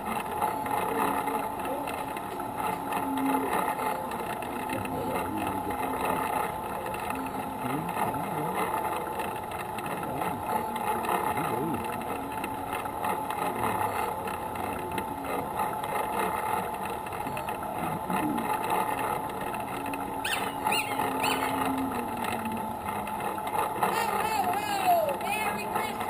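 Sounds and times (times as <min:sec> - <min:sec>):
vehicle engine running: 0:00.0 - 0:26.0.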